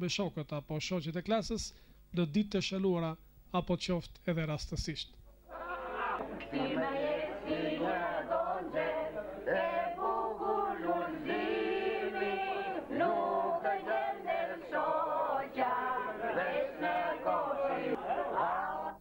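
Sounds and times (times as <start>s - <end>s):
group singing long held notes: 5.4s - 19.0s.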